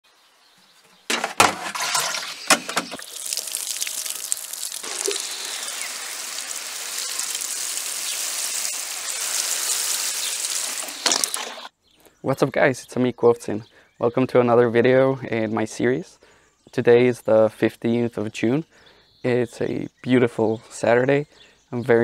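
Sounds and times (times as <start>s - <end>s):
sharp knocks and clatters: 1.0s - 3.0s
watering can spraying plants: 1.8s - 11.7s.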